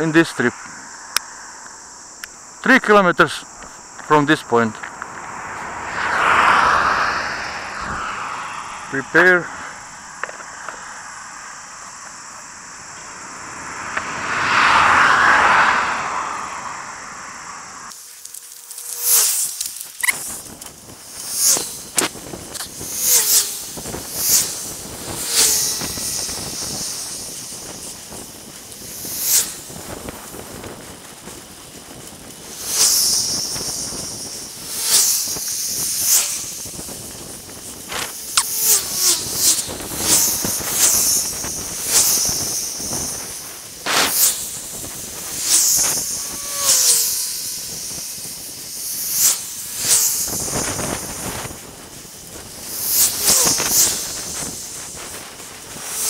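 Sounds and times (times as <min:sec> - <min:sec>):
road noise: 0:00.0 - 0:56.0
wind hiss on microphone: 0:00.0 - 0:56.0
sharp loud bursts: 0:02.4 - 0:11.8.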